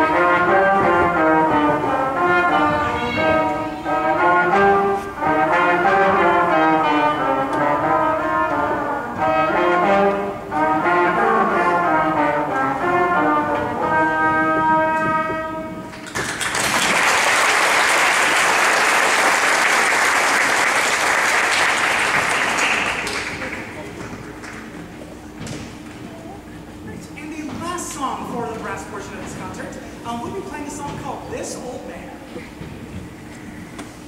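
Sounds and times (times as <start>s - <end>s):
brass trio playing: 0.0s - 16.0s, 26.3s - 33.4s
audience applauding: 16.0s - 24.9s.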